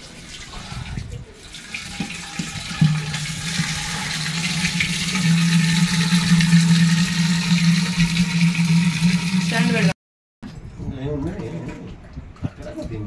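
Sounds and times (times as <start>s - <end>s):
water pouring into clay pot: 0.0s - 10.0s
low hollow tone from pot: 1.8s - 9.2s.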